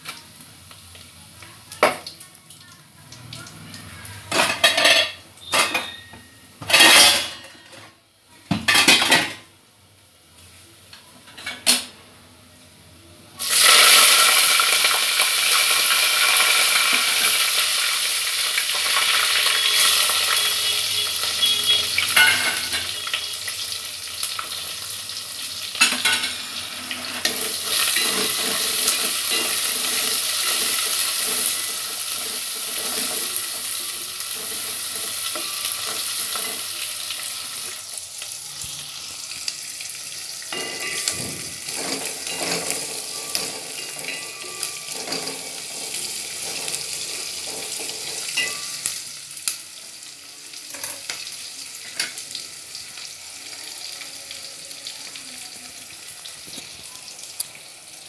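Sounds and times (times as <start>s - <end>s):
food sizzling in hot fat: 0.0s - 7.1s, 13.4s - 58.0s
metal kitchenware clinking: 4.3s - 7.9s, 8.6s - 9.5s, 22.0s - 23.1s, 25.8s - 31.6s, 40.5s - 49.0s
spoon scraping in pot: 26.0s - 33.4s.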